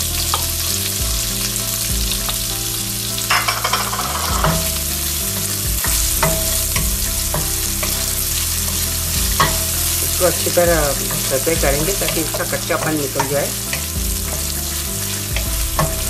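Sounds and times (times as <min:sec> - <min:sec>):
onion sizzling in hot oil: 0:00.0 - 0:16.0
wooden spatula scraping a pan: 0:03.2 - 0:16.0
steady low hum: 0:04.3 - 0:16.0.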